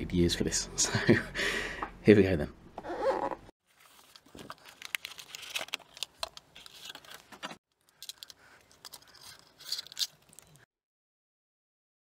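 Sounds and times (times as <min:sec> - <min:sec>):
packaging rustling and crinkling: 0:03.6 - 0:10.6.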